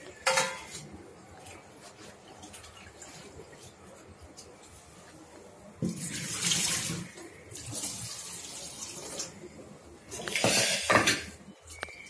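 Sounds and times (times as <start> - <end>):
water splashing into a sink: 5.8 - 9.4.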